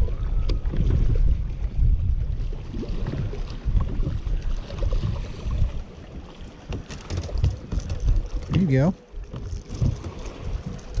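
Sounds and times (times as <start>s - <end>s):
wind rumble on microphone: 0.0s - 11.0s.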